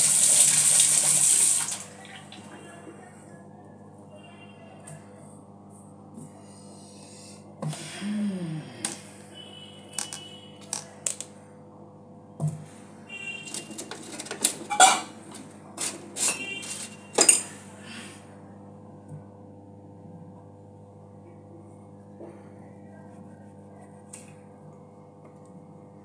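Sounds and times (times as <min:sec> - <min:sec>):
steady low hum: 0:01.9 - 0:13.2.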